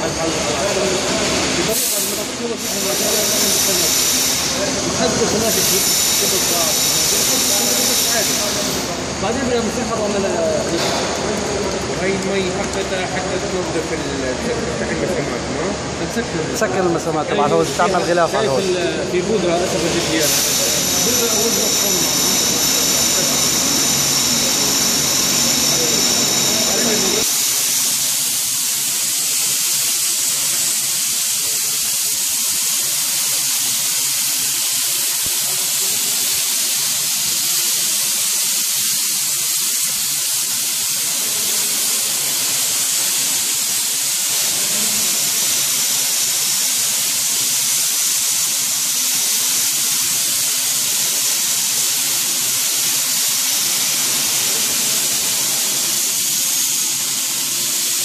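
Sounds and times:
plaster spray gun hissing: 0.0 - 58.0.

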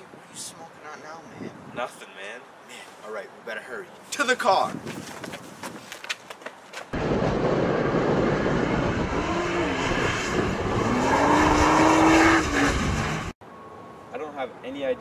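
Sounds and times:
tyre and road noise: 0.0 - 15.0
sports car engine revving: 7.0 - 13.3.

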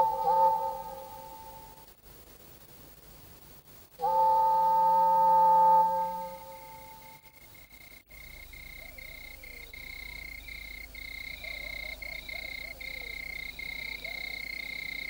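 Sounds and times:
faint wavering animal calls: 0.0 - 1.8, 8.4 - 15.0.

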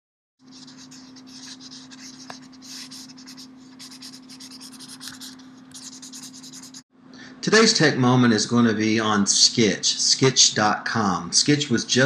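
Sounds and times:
marker scratching on surface: 0.4 - 6.8
steady low hum: 0.4 - 12.0.

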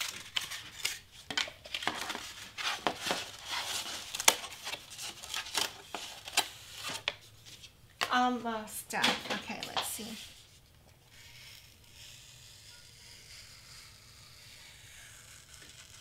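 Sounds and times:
card rustling: 0.0 - 8.1.

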